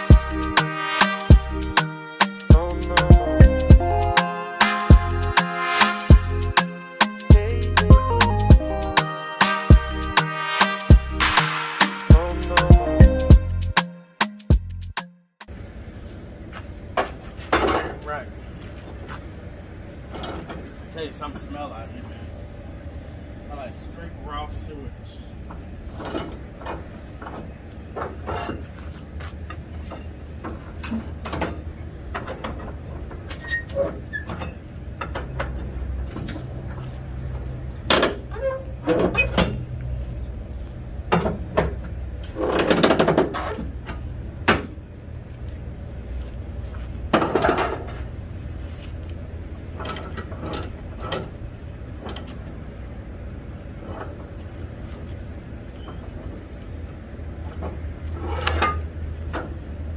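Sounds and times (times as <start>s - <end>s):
steady low rumble: 7.3s - 9.0s, 10.9s - 11.5s, 12.1s - 13.8s, 15.5s - 33.3s, 43.7s - 59.9s.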